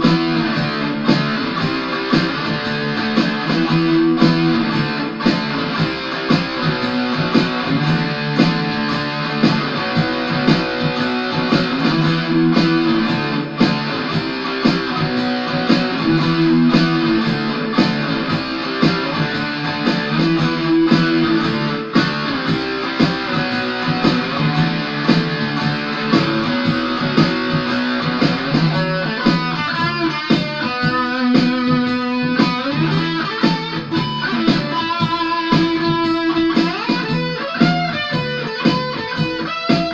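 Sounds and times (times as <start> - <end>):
electric guitar playing: 0.0 - 39.9.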